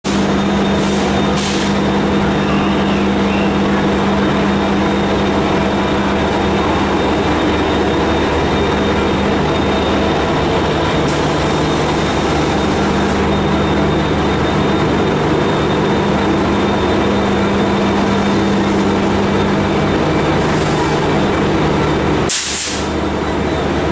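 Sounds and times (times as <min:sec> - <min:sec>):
diesel locomotive engine running: 0:00.0 - 0:23.9
air hiss: 0:22.3 - 0:22.9.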